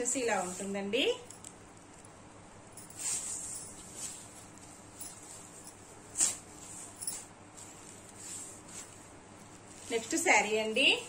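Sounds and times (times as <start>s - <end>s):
fabric rustling: 0.0s - 11.0s.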